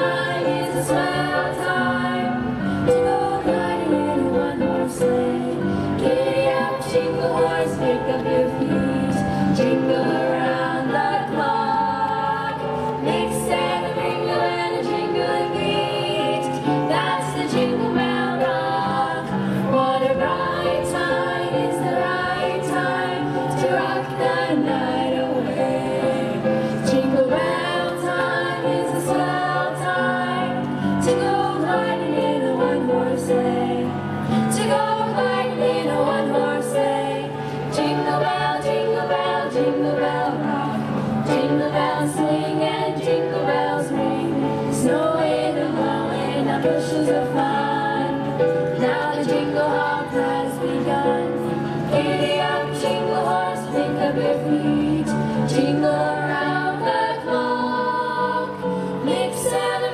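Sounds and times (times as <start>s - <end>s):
choir singing: 0.0s - 59.9s
musical accompaniment: 0.0s - 59.9s.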